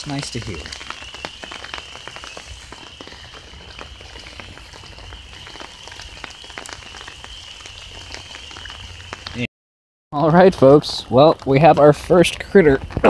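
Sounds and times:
distant frogs calling: 0:00.0 - 0:09.4
raindrops tapping on umbrella: 0:00.0 - 0:09.5, 0:10.2 - 0:13.0.

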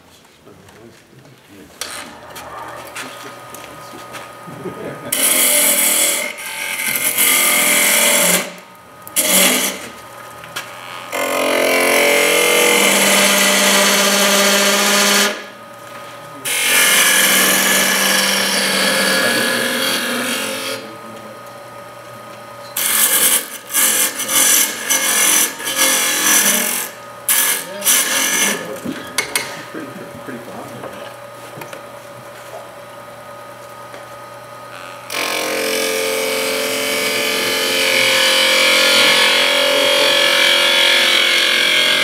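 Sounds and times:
turning tool cutting wood: 0:01.8 - 0:15.5, 0:16.4 - 0:20.9, 0:22.8 - 0:29.8, 0:34.7 - 0:42.0
wood lathe humming: 0:01.8 - 0:21.0, 0:22.8 - 0:32.3, 0:34.7 - 0:42.0.

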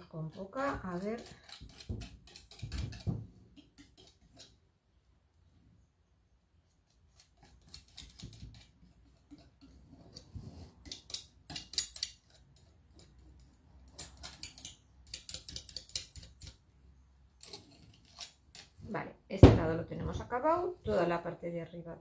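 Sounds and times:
palette knife tapping and scraping: 0:00.0 - 0:04.6, 0:06.9 - 0:16.6, 0:17.4 - 0:18.9.

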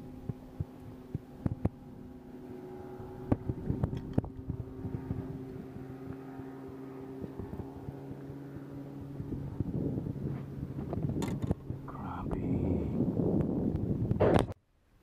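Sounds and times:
boat motor humming: 0:00.0 - 0:14.6
fishing tackle clicks and knocks: 0:03.3 - 0:04.5, 0:10.8 - 0:11.6.

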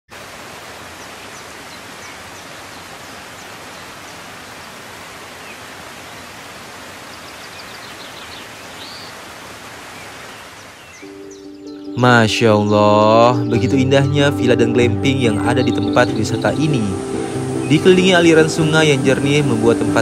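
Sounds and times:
river water rushing: 0:00.1 - 0:11.2, 0:15.2 - 0:20.0.

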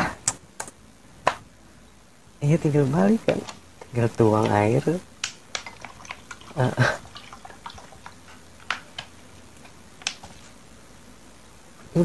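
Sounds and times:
faint clicks and taps: 0:03.2 - 0:04.6, 0:05.2 - 0:10.5
person chuckling: 0:06.6 - 0:07.1.

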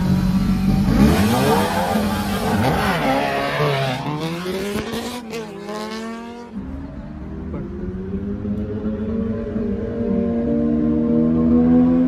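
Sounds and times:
motorcycles accelerating hard: 0:00.0 - 0:12.0.

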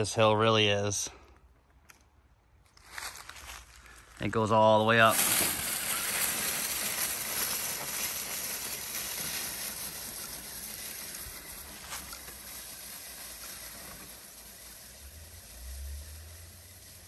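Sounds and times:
rc truck motor and tyres: 0:05.0 - 0:17.0.

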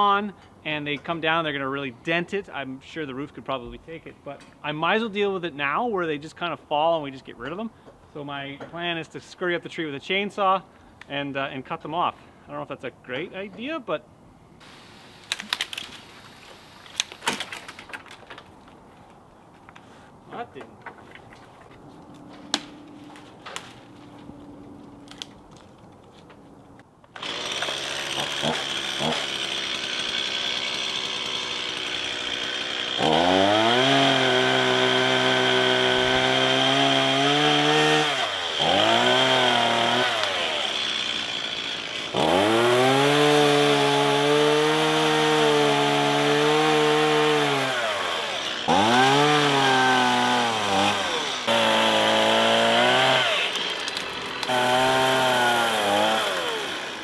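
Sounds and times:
chainsaw revving and cutting: 0:27.2 - 0:57.0.

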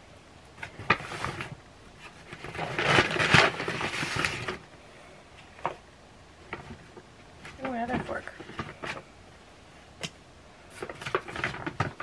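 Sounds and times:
packaging crinkling rustle: 0:00.5 - 0:04.7, 0:06.4 - 0:09.1, 0:10.6 - 0:12.0.

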